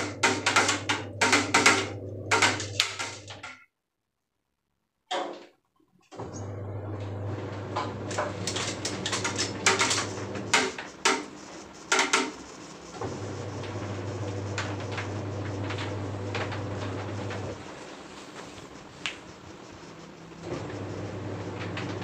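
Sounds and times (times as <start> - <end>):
electric fan motor humming: 0.0 - 3.5, 6.2 - 22.0
sharp clattering knocks: 0.0 - 3.5, 7.8 - 12.6.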